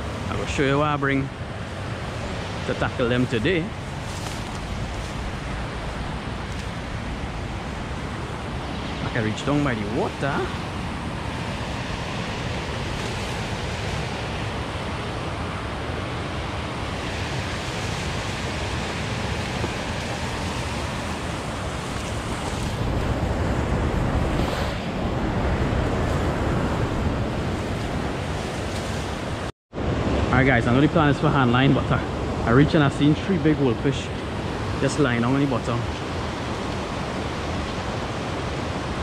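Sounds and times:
steady rushing noise: 0.0s - 39.0s.

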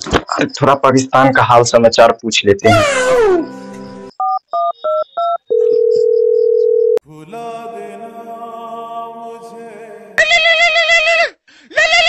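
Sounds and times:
keypad dialling tones: 4.2s - 7.0s
phone line tone: 4.2s - 7.0s.

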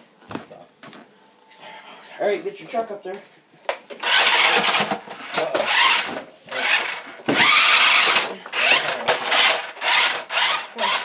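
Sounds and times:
electric motor whine revving: 4.0s - 4.9s, 5.6s - 11.0s.

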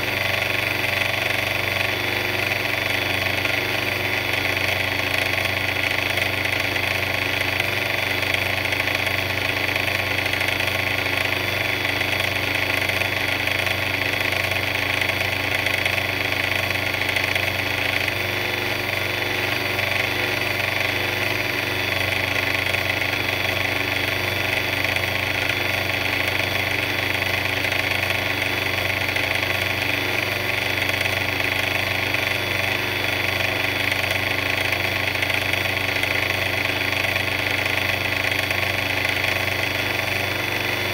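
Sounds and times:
concrete mixer engine running: 0.0s - 40.9s.

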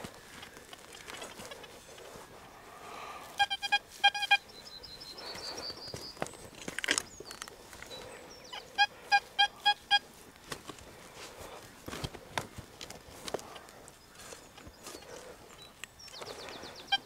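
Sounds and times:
metal detector beeps: 3.4s - 5.9s, 7.9s - 10.1s.

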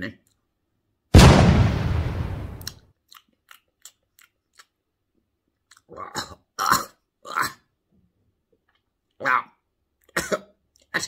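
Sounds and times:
man smacking lips and chewing: 3.0s - 7.1s, 8.4s - 9.2s.

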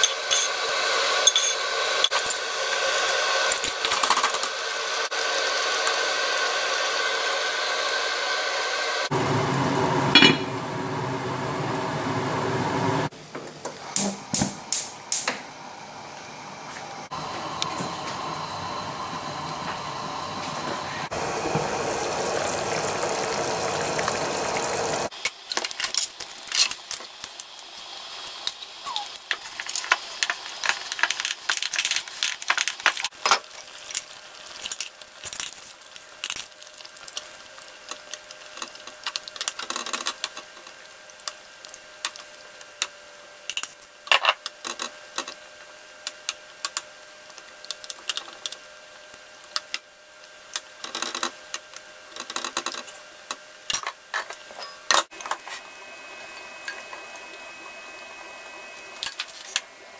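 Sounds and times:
sauce simmering hiss: 17.2s - 25.1s.

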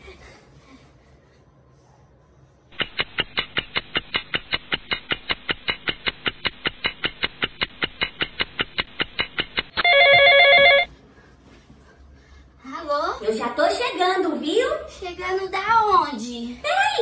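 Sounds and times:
mobile phone ringtone beeps: 9.8s - 10.9s.

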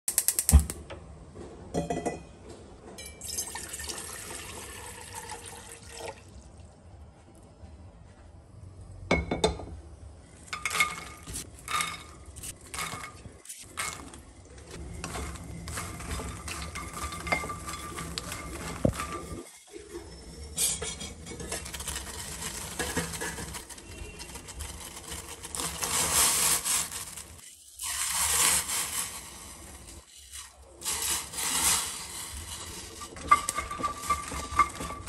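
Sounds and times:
water pouring into metal pot: 3.2s - 6.6s
metal cookware clinking: 10.5s - 14.2s, 15.0s - 19.4s, 20.4s - 21.8s, 32.6s - 35.0s.

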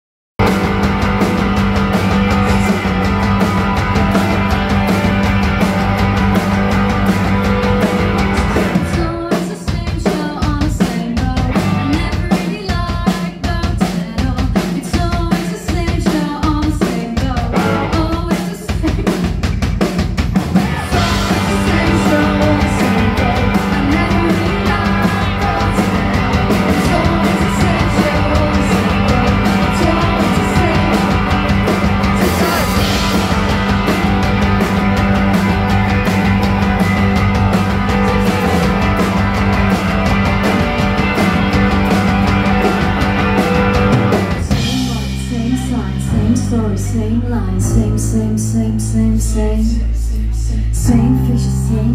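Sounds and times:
rock band playing: 0.4s - 49.8s
woman singing: 8.9s - 19.4s, 20.9s - 31.4s, 44.5s - 51.9s.

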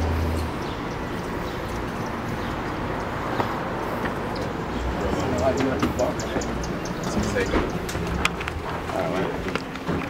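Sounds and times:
city street background noise: 0.0s - 10.0s.

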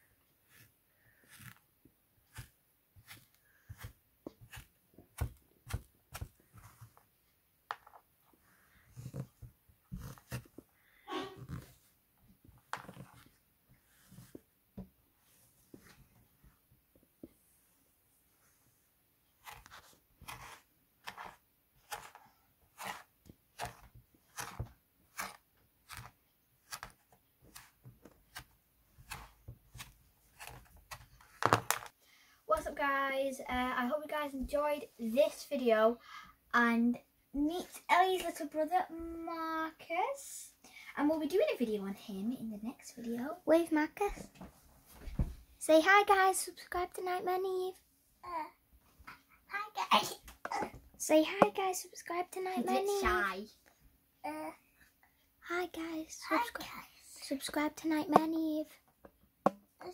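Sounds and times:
stick scraping play sand: 0.4s - 7.0s, 19.4s - 31.4s
stick tapping and crunching sand: 22.8s - 31.8s.

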